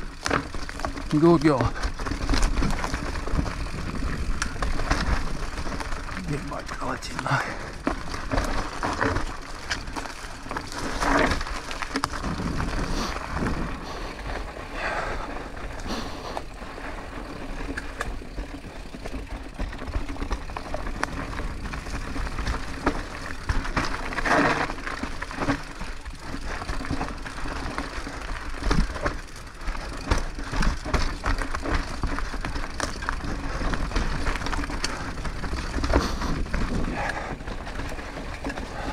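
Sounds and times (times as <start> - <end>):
bike tyres crunching leaves and twigs: 0.0 - 38.9
wind rumbling on microphone: 1.8 - 6.4, 7.7 - 18.0, 29.8 - 38.9.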